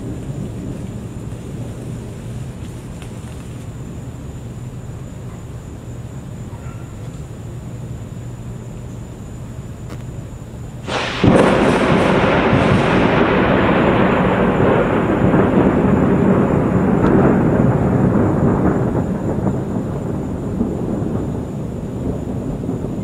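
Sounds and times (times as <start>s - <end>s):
thunder crack and rumble: 0.0s - 4.4s, 10.8s - 23.0s.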